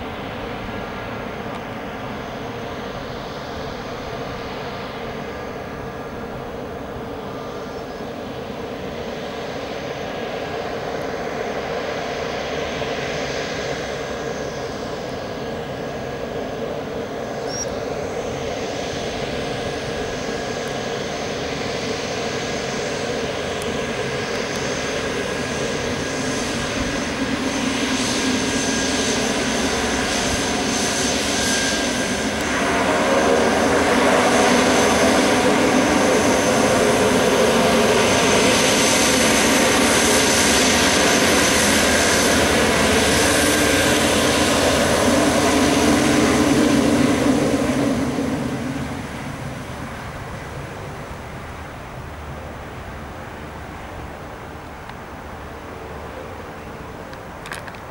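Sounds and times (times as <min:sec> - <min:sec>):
high turbine whine: 0:00.0 - 0:57.9
propeller hum: 0:00.0 - 0:57.9.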